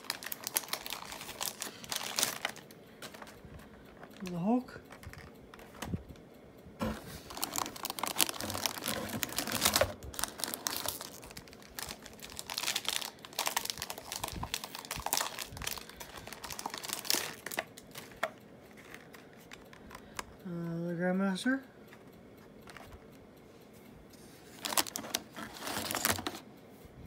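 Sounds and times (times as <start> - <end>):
foil pack crinkling and tearing: 0.0 - 3.4, 7.0 - 20.0, 24.6 - 26.4
plastic bag rustling: 0.0 - 4.3, 6.8 - 19.6, 24.4 - 26.4.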